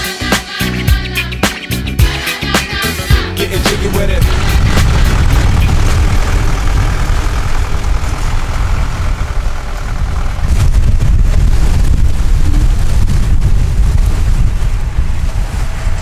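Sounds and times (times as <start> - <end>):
boat motor running: 2.0 - 16.0
wind rumble on microphone: 3.4 - 16.0
choppy water rushing: 3.6 - 16.0.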